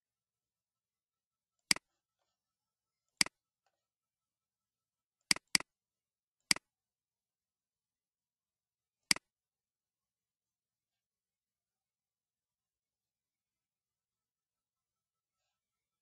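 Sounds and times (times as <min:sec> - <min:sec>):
computer mouse button clicks: 0:05.3 - 0:05.7.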